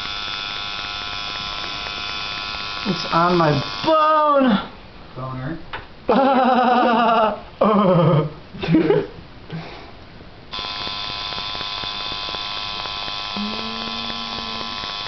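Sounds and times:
tattoo machine buzzing: 0:00.0 - 0:04.5, 0:10.5 - 0:15.0.

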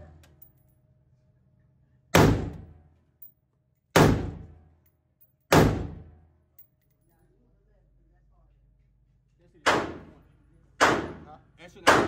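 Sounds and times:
rifle shots ringing indoors: 0:03.9 - 0:06.6, 0:09.7 - 0:10.2.

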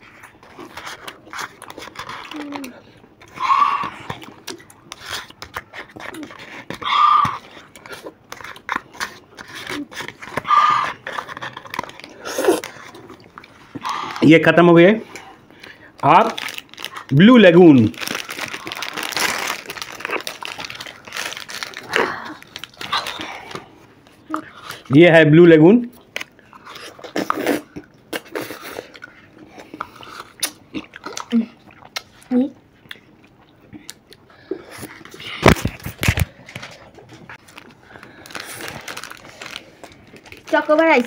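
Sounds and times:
plastic wrapper crinkling: 0:15.6 - 0:24.8, 0:35.3 - 0:41.0.

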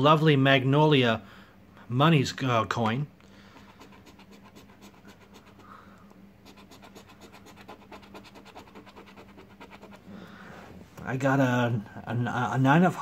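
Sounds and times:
coin scraping scratch card: 0:06.5 - 0:10.0.

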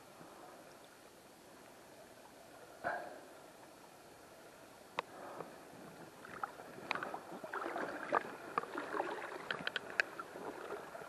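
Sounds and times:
water splashing and sloshing: 0:05.0 - 0:11.0
small clicks and knocks: 0:09.4 - 0:10.2.

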